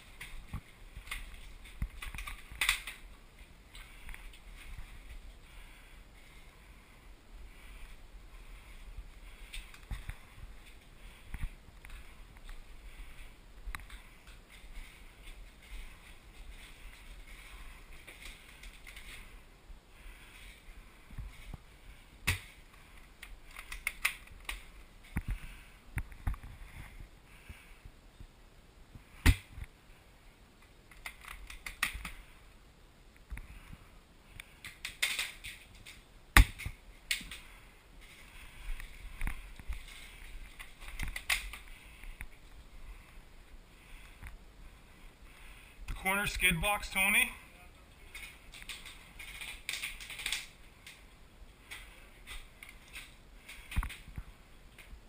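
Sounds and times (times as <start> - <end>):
gear and rifle clicking and rattling: 0.0 - 6.8, 7.5 - 19.4, 20.0 - 27.0, 30.6 - 32.4, 34.3 - 43.2, 48.0 - 55.0.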